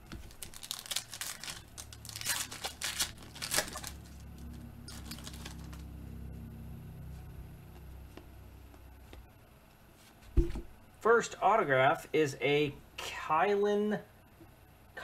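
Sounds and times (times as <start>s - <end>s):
foil packs tearing and crinkling: 0.0s - 5.9s
low steady hum: 0.0s - 15.0s.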